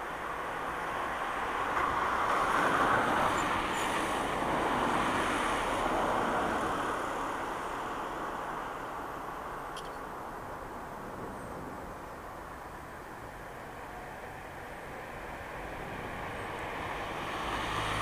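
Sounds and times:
distant vehicle rushing: 0:15.0 - 0:18.0.

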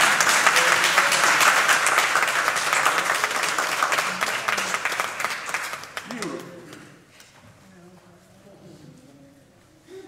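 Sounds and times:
congregation applauding: 0:00.0 - 0:07.1.

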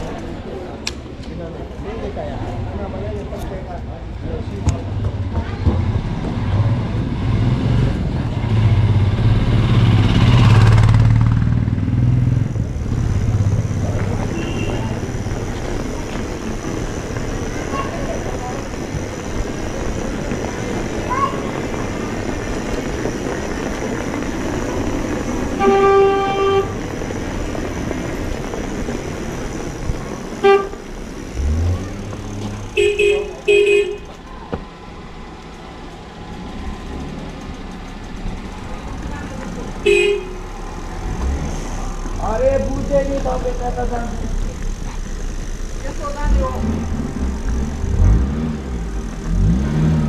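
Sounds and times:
bicycle road noise: 0:00.0 - 0:50.0
rushing wind: 0:00.0 - 0:50.0
vehicle engine running: 0:07.8 - 0:50.0
vehicle horn: 0:14.2 - 0:15.1, 0:25.5 - 0:26.8, 0:30.4 - 0:30.8, 0:32.7 - 0:34.1, 0:39.8 - 0:40.4.

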